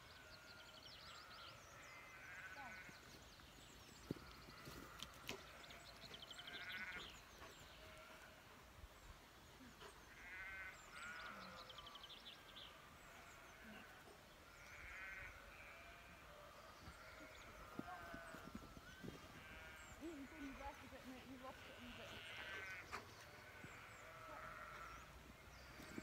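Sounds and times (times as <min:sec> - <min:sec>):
quavering animal calls: 0:10.1 - 0:11.6, 0:14.7 - 0:16.2, 0:16.9 - 0:25.1.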